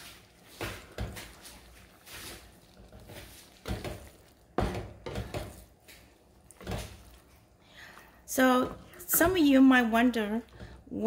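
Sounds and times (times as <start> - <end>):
spatula scraping a skillet: 0.0 - 7.4.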